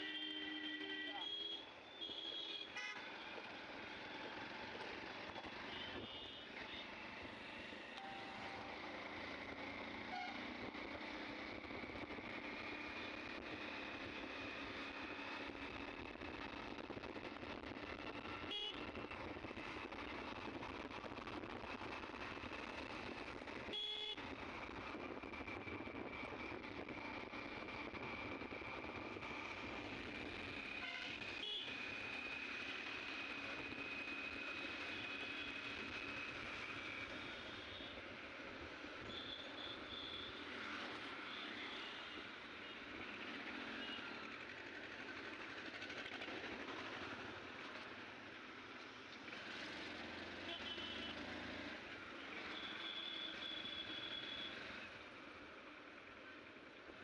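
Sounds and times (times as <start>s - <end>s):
wind and road noise: 1.7s - 8.0s, 8.6s - 52.6s
short high tone: 8.0s - 9.0s
vehicle horn toot: 23.7s - 24.2s.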